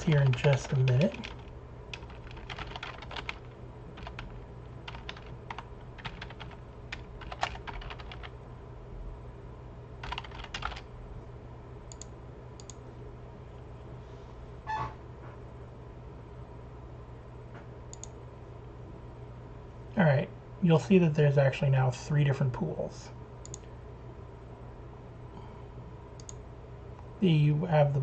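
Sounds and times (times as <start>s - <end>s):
keyboard typing: 0.0s - 8.3s, 10.0s - 10.9s.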